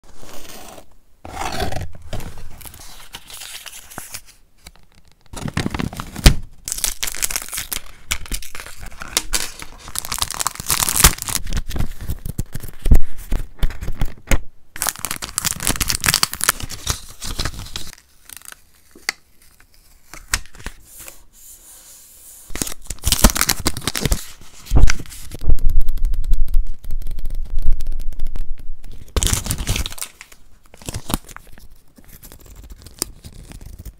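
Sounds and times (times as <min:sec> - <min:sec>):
journal pages flipping: 0:00.2 - 0:14.4, 0:15.1 - 0:21.1, 0:22.5 - 0:25.4, 0:28.8 - 0:33.9
paper rustling and crinkling: 0:01.4 - 0:21.2, 0:22.5 - 0:27.4, 0:28.8 - 0:33.9.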